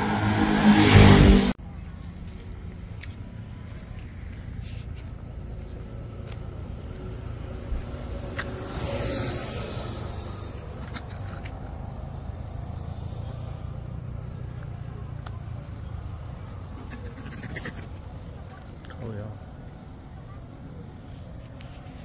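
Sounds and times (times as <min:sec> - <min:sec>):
vehicle passing close: 0:00.0 - 0:01.6, 0:06.6 - 0:18.2
road traffic rumble: 0:00.0 - 0:22.0.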